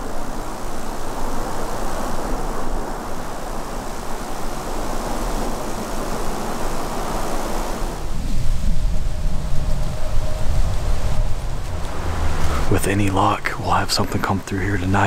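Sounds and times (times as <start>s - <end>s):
outdoor rushing noise: 0.0s - 15.0s
low rumble: 8.1s - 15.0s.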